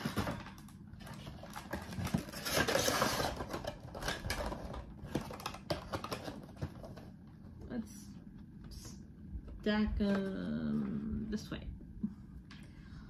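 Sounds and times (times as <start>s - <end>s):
cardboard and plastic rustling: 0.0s - 7.8s.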